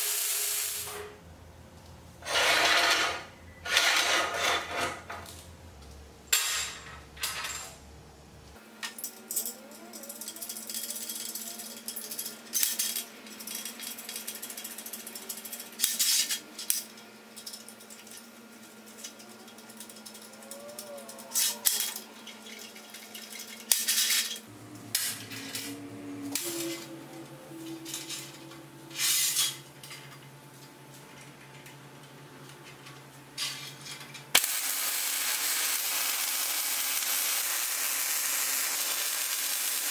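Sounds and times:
quiet background music: 24.4s - 32.4s.

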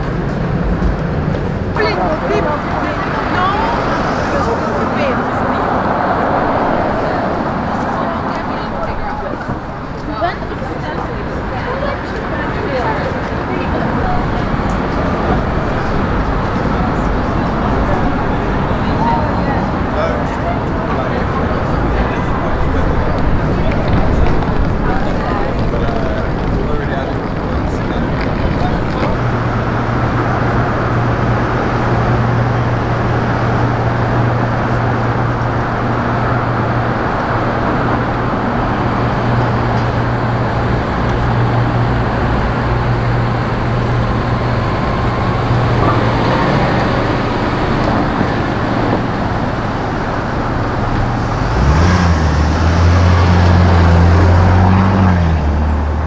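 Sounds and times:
city street traffic: 0.0s - 56.0s
vehicle engine humming: 0.0s - 56.0s
louder engine running: 20.8s - 56.0s.

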